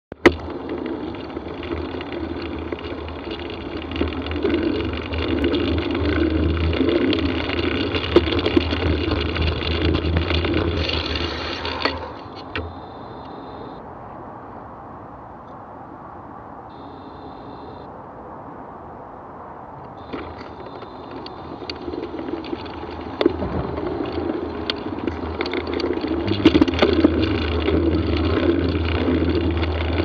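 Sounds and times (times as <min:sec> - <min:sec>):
wheels rolling on rough path: 0:00.1 - 0:14.9, 0:15.8 - 0:30.0
motorway traffic rumble: 0:00.1 - 0:30.0.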